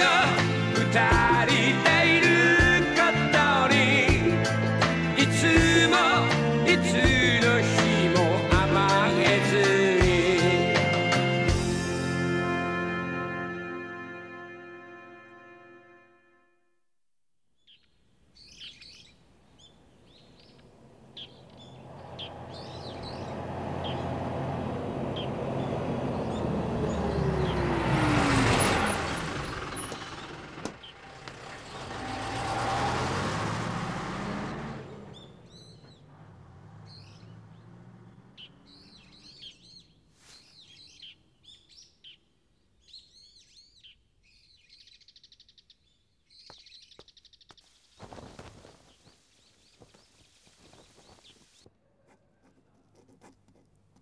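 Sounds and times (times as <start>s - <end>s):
bus engine passing: 0.0s - 14.2s, 19.2s - 41.2s
birds chirping: 17.6s - 52.8s.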